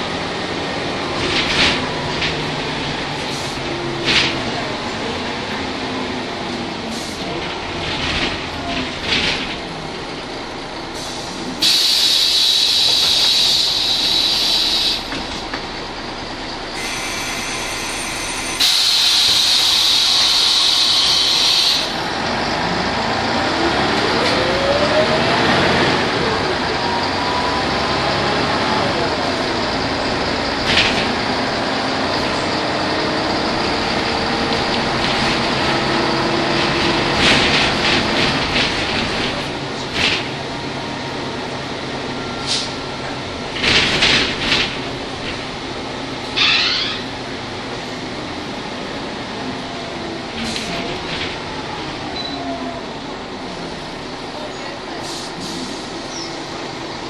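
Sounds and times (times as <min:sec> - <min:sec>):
bus engine: 0:00.0 - 0:57.0
compressed-air hiss: 0:11.0 - 0:15.1.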